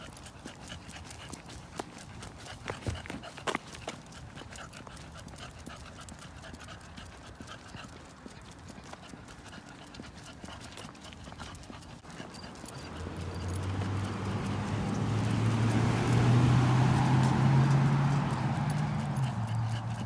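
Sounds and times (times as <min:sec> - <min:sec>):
footsteps on concrete: 0:00.0 - 0:20.0
car approaching hum: 0:10.8 - 0:20.0.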